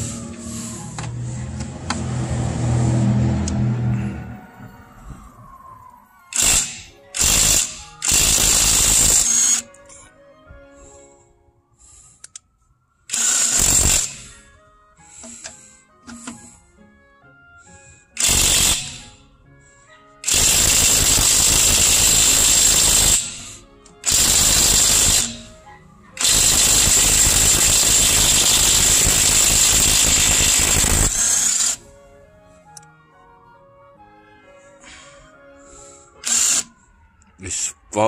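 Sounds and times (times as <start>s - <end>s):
impact wrench hammering: 20.2s - 25.5s, 26.2s - 31.8s.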